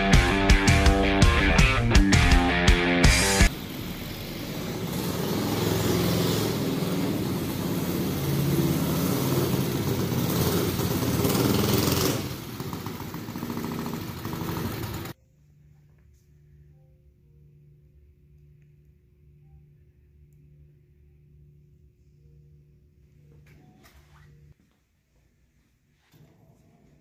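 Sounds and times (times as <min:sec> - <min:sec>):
minibike engine running: 0:03.1 - 0:15.2.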